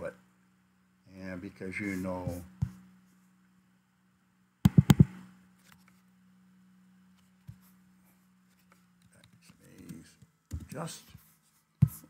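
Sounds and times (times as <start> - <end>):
faint low hum: 0.0 - 12.0
computer keys and mouse clicking: 4.7 - 5.1.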